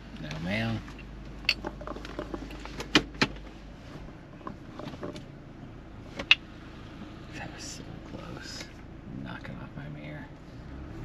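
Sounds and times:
low steady hum: 0.0s - 11.0s
clicks and knocks in car cabin: 1.3s - 3.5s.

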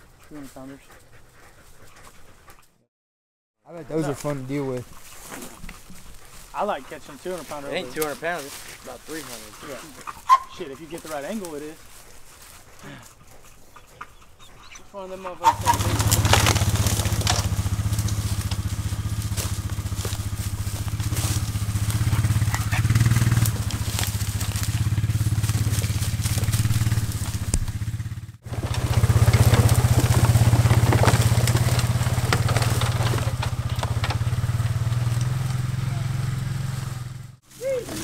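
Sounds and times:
twigs crackling underfoot: 3.9s - 38.0s
vehicle engine idling: 15.5s - 38.0s.

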